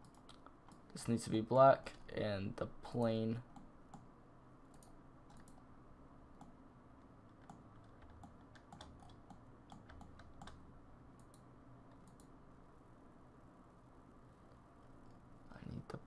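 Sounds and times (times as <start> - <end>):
keyboard and mouse clicks: 0.0 - 0.9, 4.7 - 5.6, 7.3 - 10.6, 11.2 - 12.3
low steady hum: 0.0 - 16.0.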